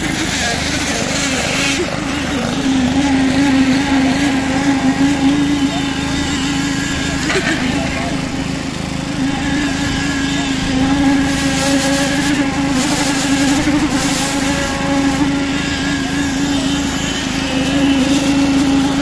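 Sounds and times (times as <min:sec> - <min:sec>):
small petrol engine humming: 0:00.0 - 0:19.0.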